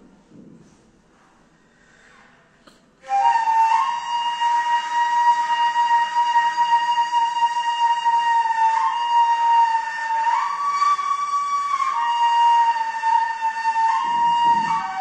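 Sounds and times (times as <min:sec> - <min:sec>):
end-blown reed flute playing: 0:03.0 - 0:15.0.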